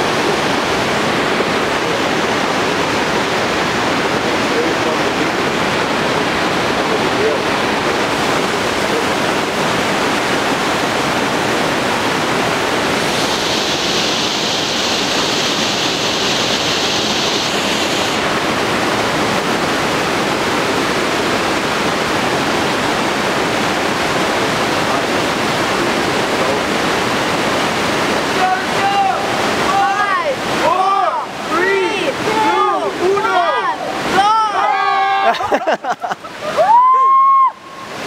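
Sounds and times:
rushing water noise: 0.0 - 38.0
bright hiss: 13.0 - 18.2.

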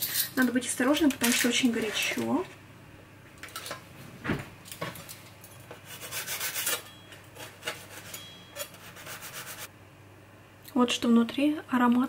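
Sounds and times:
knife sawing through crisp wrap: 5.8 - 6.8, 7.4 - 9.7.

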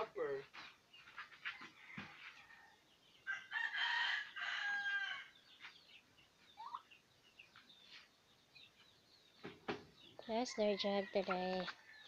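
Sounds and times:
rooster crowing: 1.8 - 5.3
faint poultry calls: 6.4 - 8.1.

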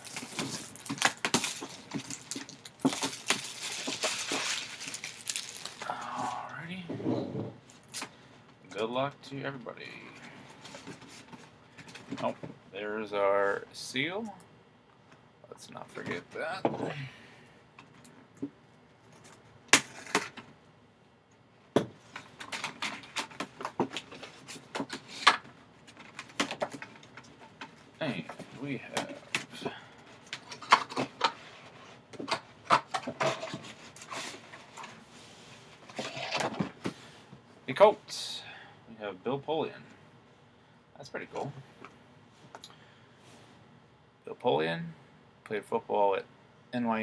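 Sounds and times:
plastic shrink-wrap tearing and crinkling: 0.0 - 6.0.

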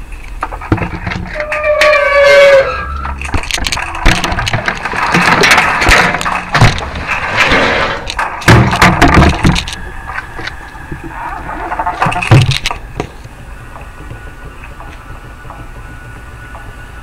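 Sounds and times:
trash dumped into metal dumpster: 3.2 - 9.7.

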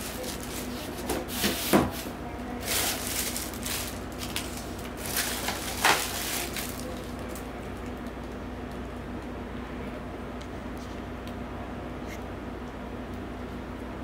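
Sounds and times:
plastic bag crinkling: 0.0 - 0.7, 2.5 - 8.4.

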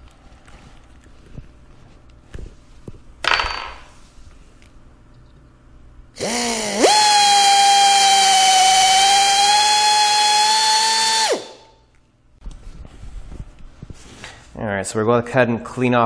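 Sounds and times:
air drill whining: 6.2 - 11.7.

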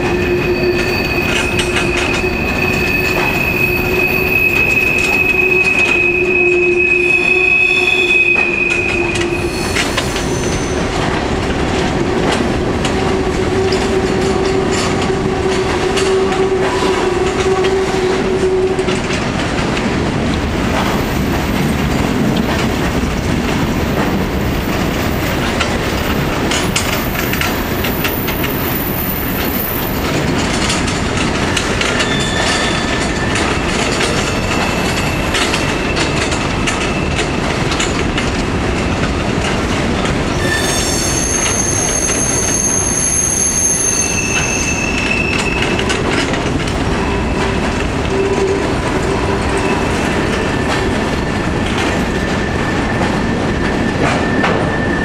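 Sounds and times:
high wheel squeal: 0.0 - 10.9, 31.8 - 37.4, 40.3 - 50.9
lower squeal tone: 0.0 - 10.9, 31.8 - 37.4, 40.3 - 50.8
train wheels rumbling and clacking: 0.0 - 55.0.

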